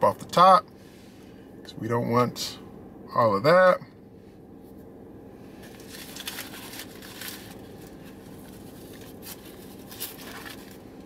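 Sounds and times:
paper wrapper tearing and crinkling: 5.6 - 11.0.

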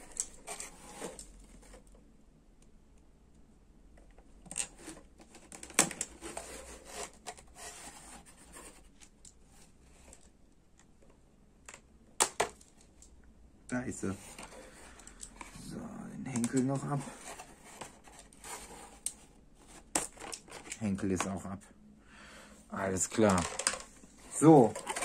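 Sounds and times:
toy packaging rustling: 13.8 - 20.8, 22.8 - 25.0.

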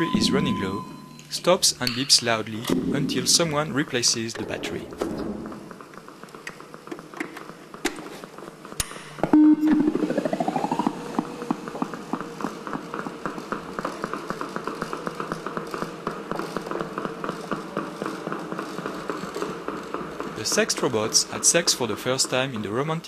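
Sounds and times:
loud beep: 0.0 - 1.3, 9.3 - 11.1
rising whine: 9.2 - 12.5.

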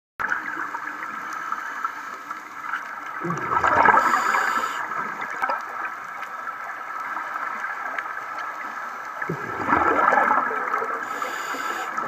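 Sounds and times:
exhaled bubbles underwater: 2.6 - 12.0
underwater regulator breathing: 3.8 - 5.1, 11.0 - 12.0.

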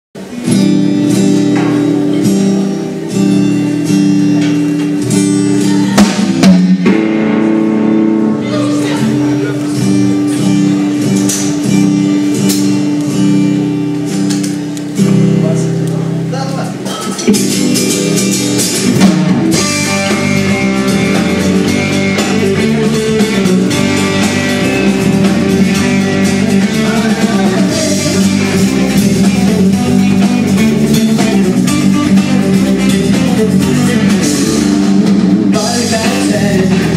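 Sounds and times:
drum kit: 0.2 - 36.9
guitar chords: 0.2 - 36.9
live band playing: 0.2 - 36.9
loud drum hits: 5.9 - 7.8.

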